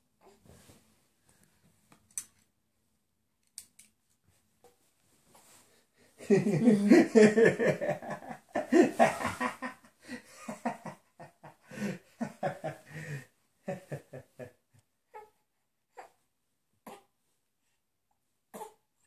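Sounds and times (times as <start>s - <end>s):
person laughing: 6.2s - 14.4s.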